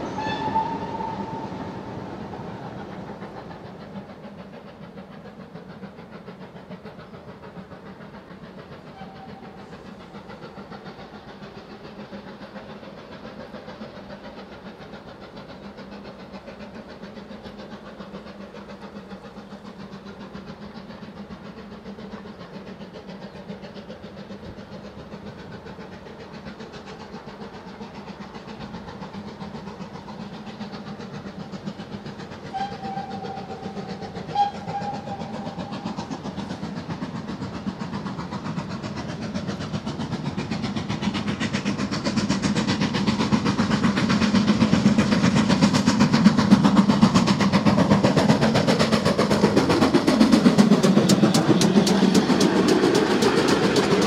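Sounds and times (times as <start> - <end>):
steam whistle: 0.0 - 2.0, 8.9 - 9.8, 32.5 - 35.9
steam locomotive exhaust beats: 0.0 - 54.0.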